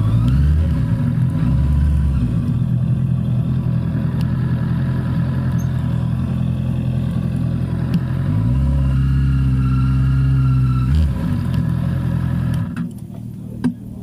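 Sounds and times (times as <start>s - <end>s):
motorcycle engines idling: 0.0s - 8.6s.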